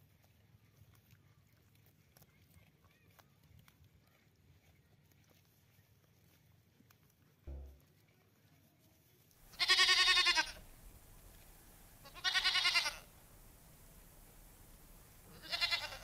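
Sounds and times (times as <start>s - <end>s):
goat bleating: 9.5s - 10.8s, 12.0s - 13.2s, 15.0s - 16.0s.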